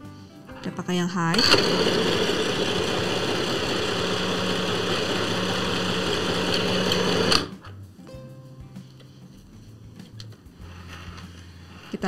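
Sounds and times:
sewing machine stitching: 1.3 - 7.5.

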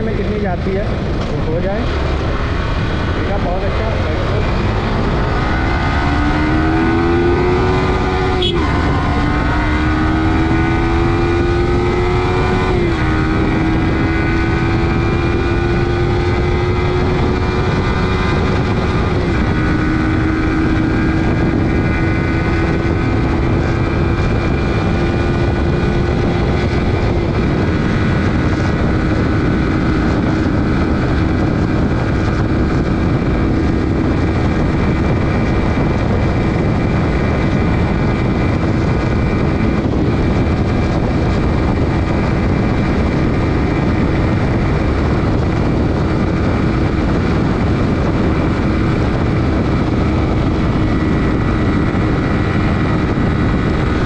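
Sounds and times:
motorcycle engine accelerating: 0.0 - 54.0
quickshifter upshifts: 0.0 - 54.0
wind rush: 0.0 - 54.0.

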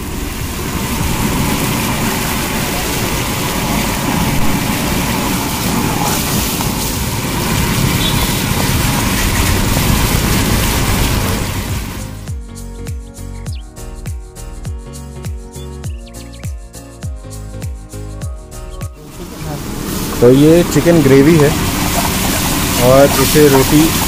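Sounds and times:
gravy boiling hard: 0.0 - 12.2, 19.2 - 24.0.

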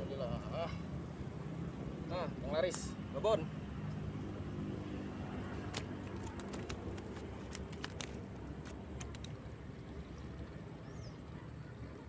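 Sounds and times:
low steady rumble: 0.0 - 12.0
cast net clicking: 5.6 - 9.4.

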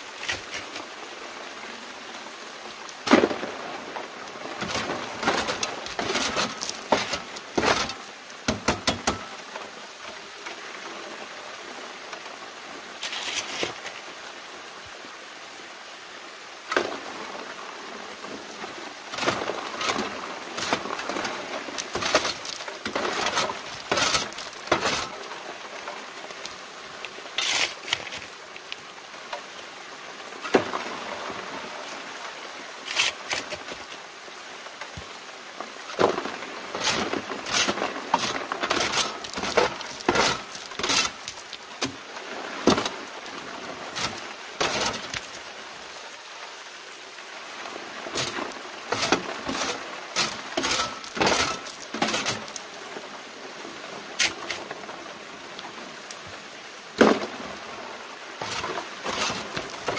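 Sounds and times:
water running through sluice: 0.0 - 59.9
gravel clattering onto metal screen: 4.6 - 9.3, 19.2 - 25.2, 35.9 - 42.0, 44.0 - 45.4, 48.2 - 52.8, 58.4 - 59.9.

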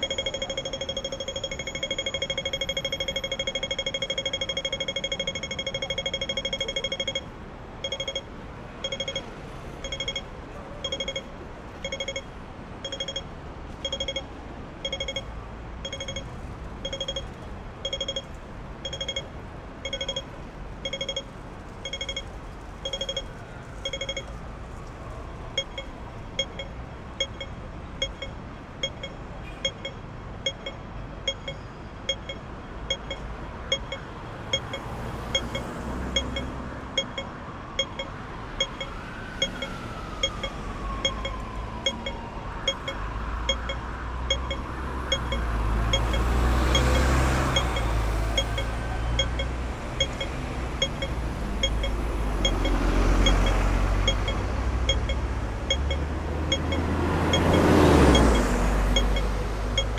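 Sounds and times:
crossing signal beeping: 0.0 - 59.9
street noise: 0.0 - 59.9.

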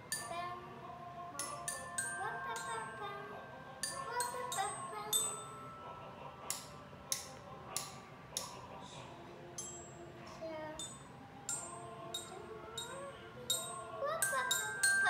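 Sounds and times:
glockenspiel notes: 1.4 - 6.8, 10.8 - 15.0.

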